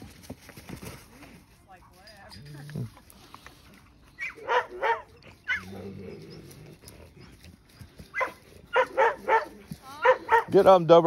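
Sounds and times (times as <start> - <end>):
dogs yipping and barking: 3.9 - 10.7.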